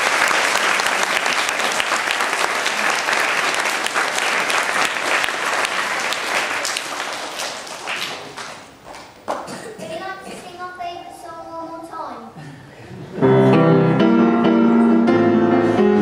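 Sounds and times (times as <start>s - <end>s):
audience applause: 0.0s - 9.5s.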